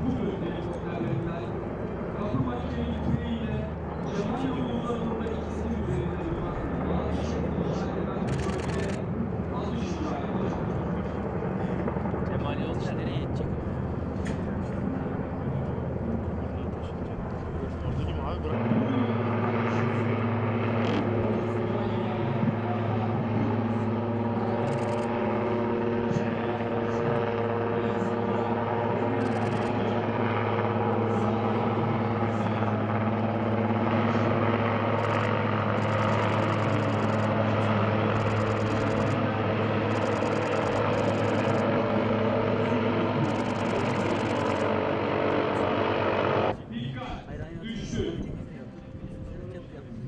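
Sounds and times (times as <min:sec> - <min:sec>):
helicopter flying low: 0:00.0 - 0:50.0.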